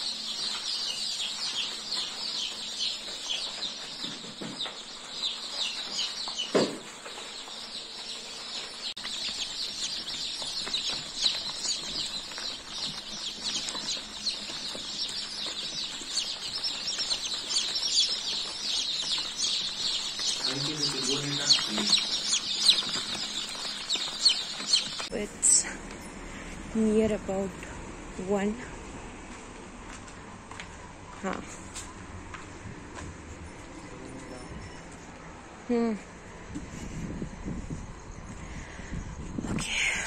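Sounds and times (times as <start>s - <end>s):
chicks peeping: 0.0s - 28.6s
knock: 6.5s - 6.9s.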